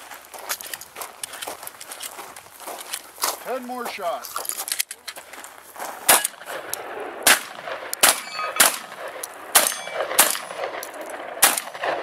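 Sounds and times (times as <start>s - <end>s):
shotgun shots: 6.1s - 12.0s
steel target ringing: 8.0s - 9.0s, 9.6s - 10.6s.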